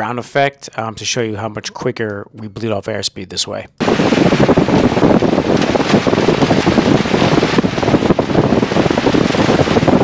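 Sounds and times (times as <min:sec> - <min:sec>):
airplane engine and propeller: 0:03.8 - 0:10.0
wind buffeting microphone: 0:03.8 - 0:10.0.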